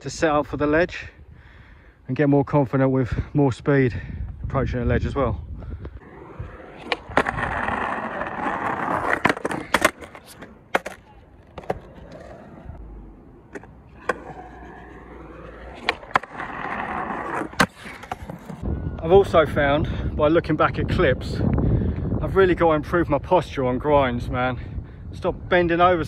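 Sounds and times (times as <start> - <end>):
skateboard wheels rolling on concrete: 5.0 - 19.4
skateboard clacks: 6.7 - 12.4.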